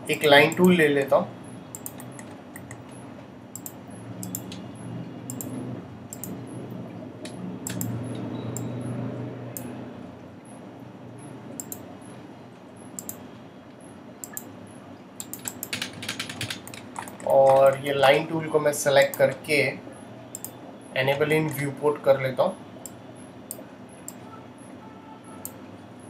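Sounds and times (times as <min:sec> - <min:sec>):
computer mouse clicks: 0:01.7 - 0:04.7, 0:05.3 - 0:06.4, 0:07.2 - 0:08.7, 0:11.6 - 0:11.9, 0:12.9 - 0:13.2, 0:14.2 - 0:14.5, 0:15.2 - 0:17.8, 0:20.3 - 0:20.6.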